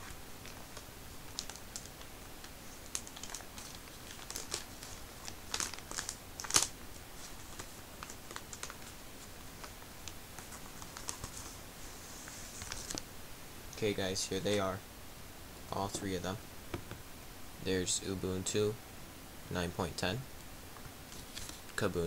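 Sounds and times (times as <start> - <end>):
paper crackling and rustling: 0.0 - 13.0, 21.1 - 21.8.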